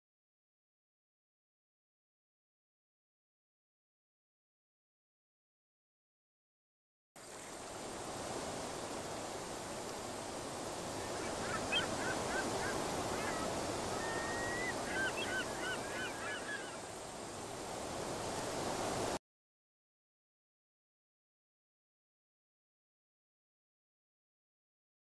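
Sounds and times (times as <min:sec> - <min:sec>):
outdoor ambient noise: 0:07.2 - 0:19.2
birds calling in short notes: 0:11.0 - 0:16.9.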